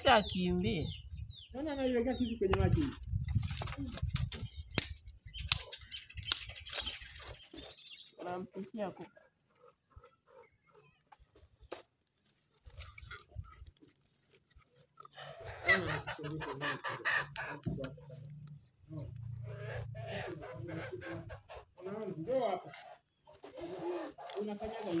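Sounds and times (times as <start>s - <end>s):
farm animals calling: 5.4s - 11.4s, 12.2s - 25.0s.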